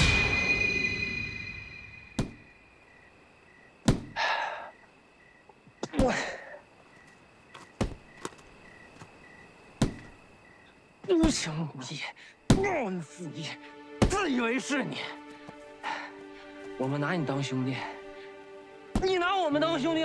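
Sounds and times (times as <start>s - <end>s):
sharp thuds: 2.1s - 2.5s, 3.8s - 4.2s, 7.6s - 8.4s, 9.8s - 10.2s, 14.0s - 14.2s, 18.9s - 19.2s.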